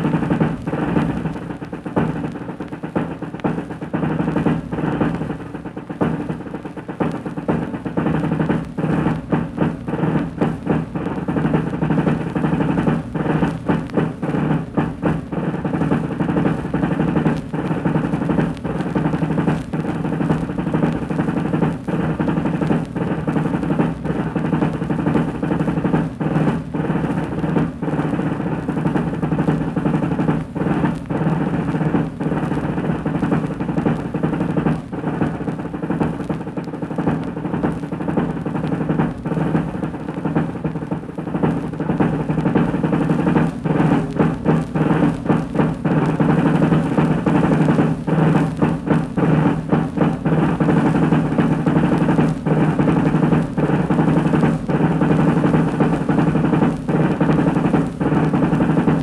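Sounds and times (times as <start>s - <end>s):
snare drum rolls: 0.0s - 59.0s.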